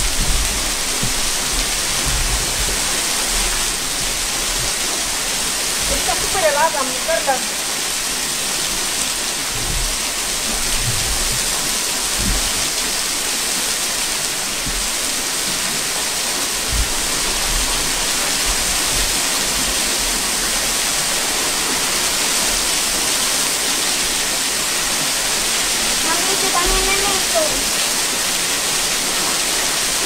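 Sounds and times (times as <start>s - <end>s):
low thuds: 0.0s - 5.4s, 9.4s - 13.0s, 16.6s - 19.1s
river cascades rushing: 0.0s - 30.0s.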